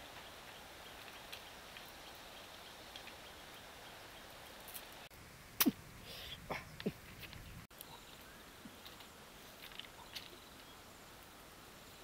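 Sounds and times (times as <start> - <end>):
faint outdoor background: 0.0 - 12.0
wicker basket creaking on stones: 8.8 - 10.7.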